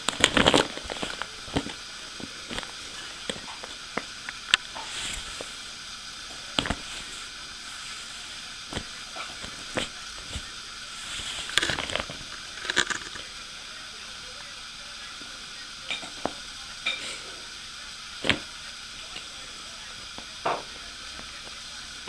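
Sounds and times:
plastic bag crackling and rustling: 0:00.0 - 0:03.8
steady background hiss: 0:00.0 - 0:22.0.

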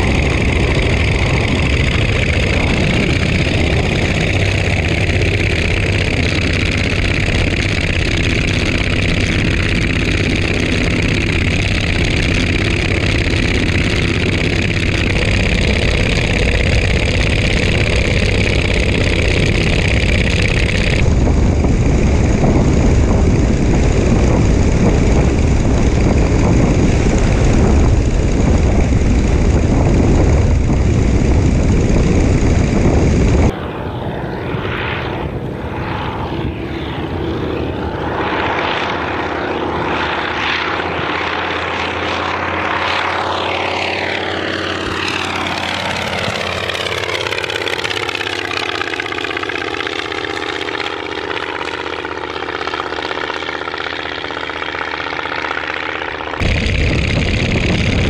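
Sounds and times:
air rushing over microphone: 0:00.0 - 0:33.6, 0:56.2 - 0:58.0
radial aircraft engine with propeller: 0:00.0 - 0:58.0.

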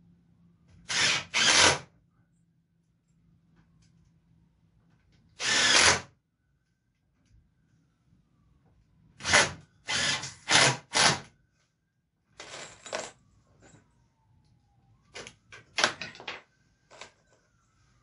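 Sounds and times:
cordless drill driving screws: 0:00.9 - 0:01.8, 0:05.4 - 0:06.1, 0:09.2 - 0:11.2.

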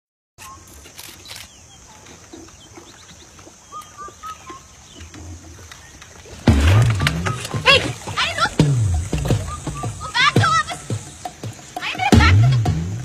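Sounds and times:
faint bird chirps: 0:00.4 - 0:12.1
loud sudden sound: 0:06.5 - 0:10.1.

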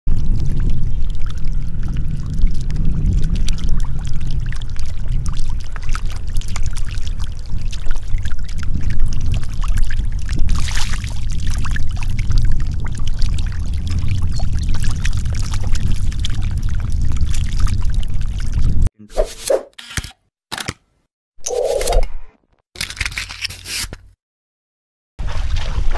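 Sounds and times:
heavy low rumble: 0:00.1 - 0:18.9
water flowing over a field: 0:00.2 - 0:18.6
fish thrashing and splashing: 0:02.6 - 0:18.3.

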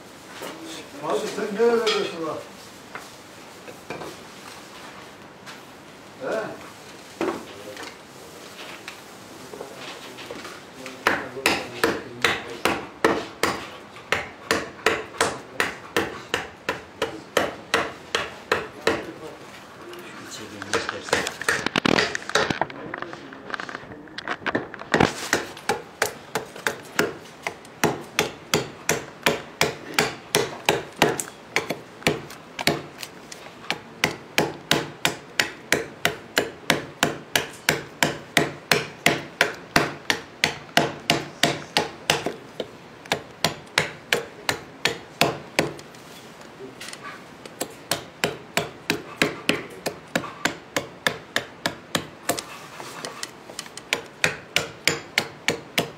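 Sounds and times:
adze chopping wood: 0:11.0 - 0:19.1, 0:20.6 - 0:22.6, 0:24.9 - 0:45.9, 0:47.5 - 0:55.9.

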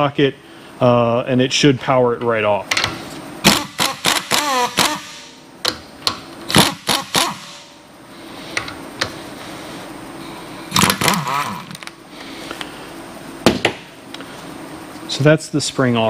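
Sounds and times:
power tool spinning nut: 0:03.5 - 0:05.2, 0:06.5 - 0:07.6, 0:10.8 - 0:11.9.

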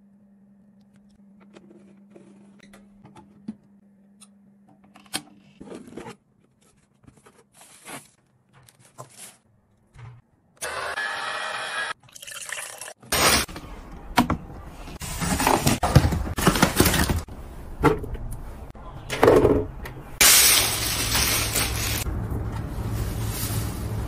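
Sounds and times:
scraping rustling strokes: 0:22.8 - 0:24.0.

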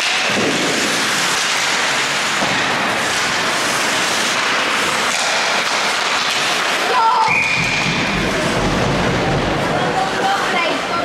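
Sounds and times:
ice rink hiss: 0:00.0 - 0:11.0.

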